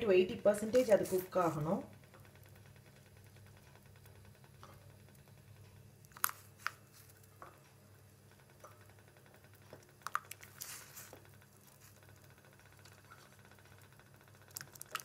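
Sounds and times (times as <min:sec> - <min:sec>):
low steady hum: 0:00.0 - 0:15.0
potatoes stirred in water: 0:14.4 - 0:15.0.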